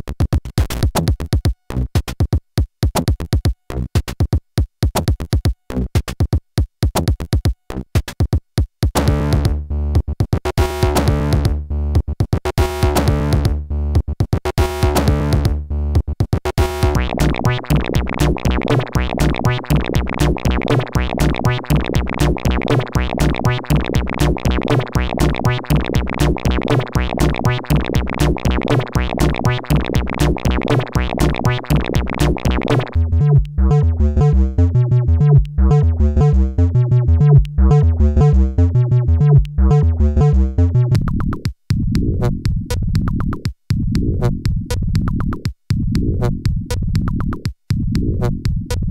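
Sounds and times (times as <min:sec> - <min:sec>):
heavy bass pulse: 0:12.8 - 0:14.0, 0:14.7 - 0:16.0, 0:16.6 - 0:47.3
electronic synthesizer pulses: 0:16.6 - 0:41.3
warbling synth line: 0:16.9 - 0:41.0.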